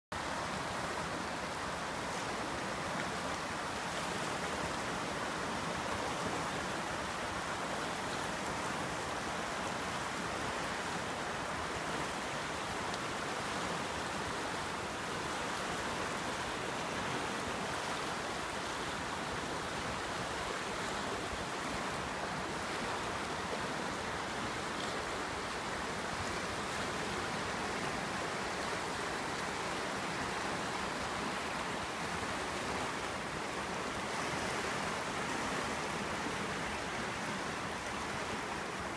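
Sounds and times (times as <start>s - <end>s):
river rushing over rapids: 0.2s - 38.9s.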